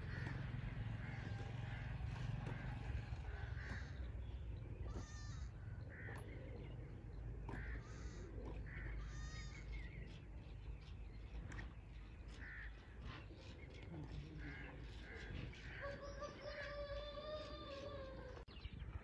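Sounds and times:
crows cawing: 0.0s - 6.8s, 7.4s - 9.9s, 12.3s - 13.0s, 14.4s - 18.3s
steady low rumble: 0.0s - 15.8s.

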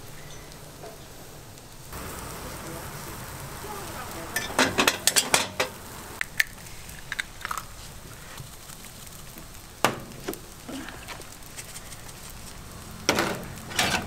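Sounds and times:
faint steady hiss: 0.0s - 14.0s
metal utensils clattering: 4.3s - 5.8s, 13.1s - 14.0s.

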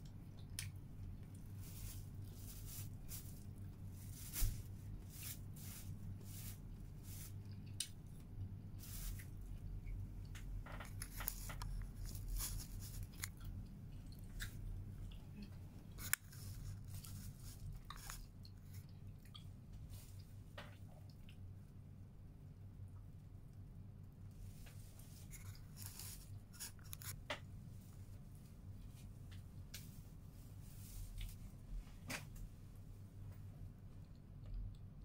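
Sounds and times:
chewing food: 0.0s - 1.6s, 7.4s - 8.6s, 9.2s - 21.5s, 33.7s - 35.0s
steady low hum: 0.0s - 35.0s
plastic sheet crinkles: 1.5s - 7.4s, 8.8s - 9.3s, 10.6s - 13.4s, 15.9s - 18.8s, 25.0s - 27.2s.

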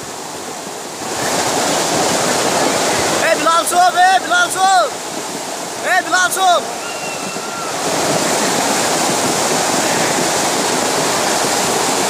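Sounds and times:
water rushing over rocks: 0.0s - 12.0s.

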